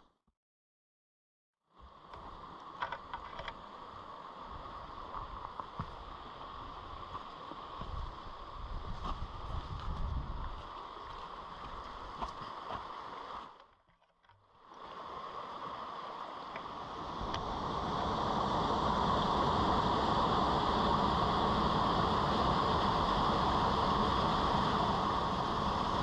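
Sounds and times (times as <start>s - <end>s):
stream rushing over rocks: 3.6s - 13.6s, 14.7s - 26.0s
waterfall rushing: 14.8s - 26.0s.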